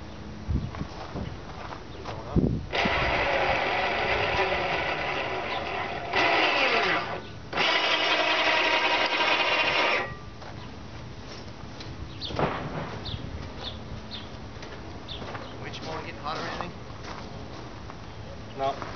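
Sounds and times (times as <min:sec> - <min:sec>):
electric winch motor running: 0:02.7 - 0:10.3.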